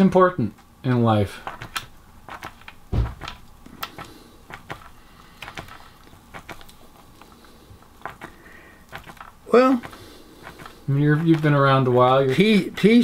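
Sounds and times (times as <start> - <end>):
pen tapping on paper: 1.5 - 6.6
dull thump: 2.9 - 3.4.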